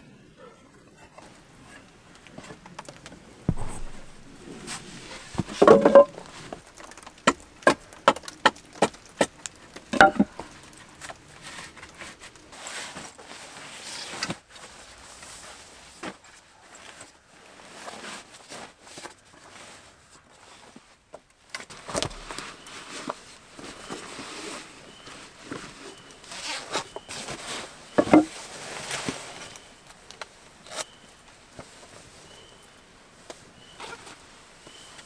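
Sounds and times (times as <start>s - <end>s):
sleeping bag rustling: 1.2s - 6.8s, 10.2s - 35.0s
wooden slats clacking: 5.4s - 6.3s, 10.0s - 10.3s.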